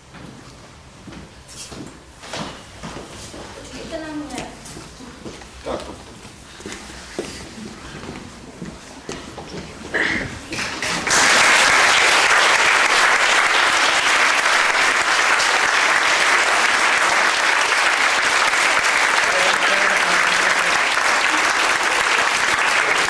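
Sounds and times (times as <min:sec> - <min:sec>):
audience applauding: 0:10.6 - 0:23.0.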